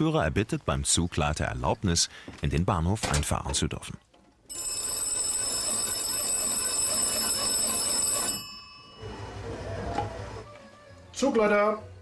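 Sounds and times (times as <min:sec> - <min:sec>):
telephone bell ringing: 0:04.5 - 0:09.6.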